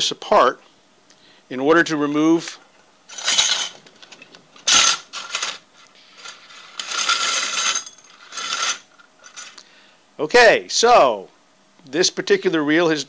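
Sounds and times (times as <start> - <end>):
reel spool scraping and rattling: 3.1 - 9.6.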